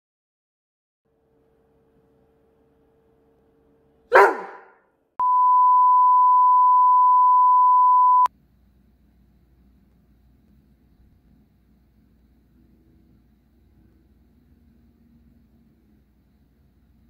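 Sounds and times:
dog barking: 4.1 - 4.8
test tone beep: 5.2 - 8.3.

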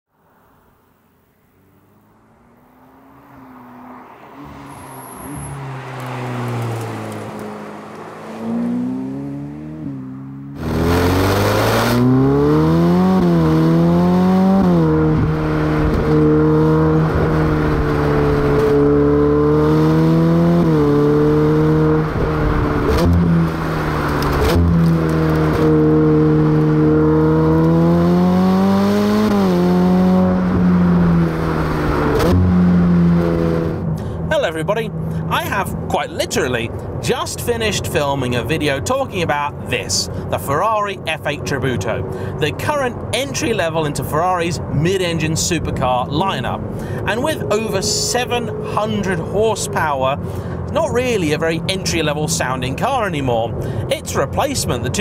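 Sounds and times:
sports car engine revving: 1.6 - 34.2, 46.5 - 52.9.

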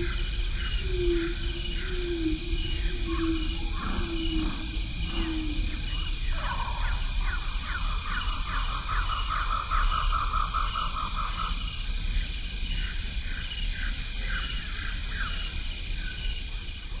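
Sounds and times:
wind rumble on microphone: 0.0 - 8.9.

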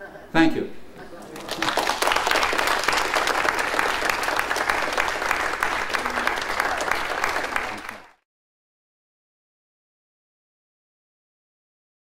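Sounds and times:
audience applauding: 1.2 - 8.2.

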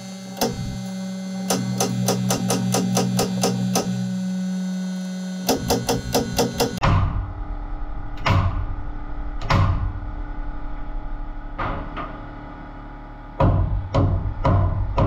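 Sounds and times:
background music with steady beat: 11.5 - 15.0.

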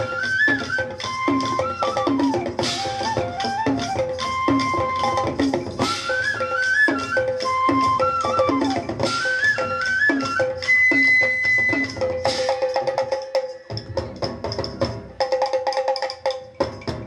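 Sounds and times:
wooden percussion strikes: 0.0 - 17.0
brass hand cymbals clashing: 11.8 - 14.6.

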